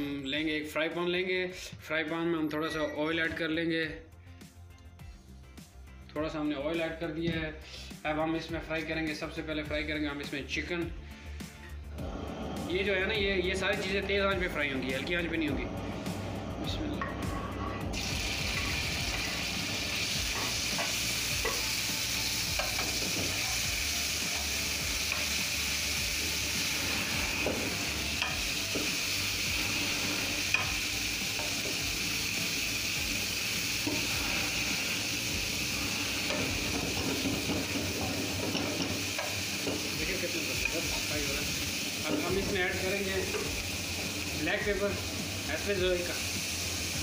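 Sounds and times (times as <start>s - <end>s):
chicken sizzling in frying pan: 16.7s - 47.0s
metal spatula scraping pan: 17.0s - 19.5s.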